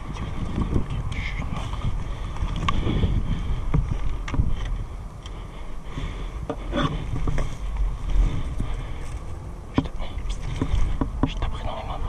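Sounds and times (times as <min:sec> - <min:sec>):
clothing and gear rustling: 0:00.0 - 0:09.5
wind buffeting microphone: 0:00.0 - 0:12.0.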